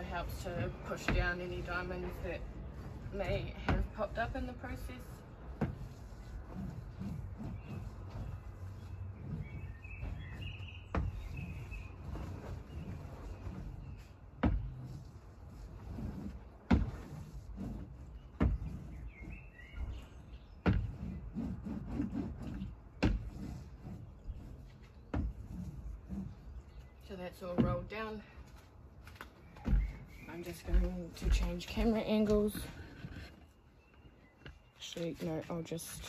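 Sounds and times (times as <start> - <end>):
rolling pin rumbling on board: 0.0 - 28.0
birds chirping: 7.3 - 14.8, 17.9 - 21.4, 23.6 - 36.0.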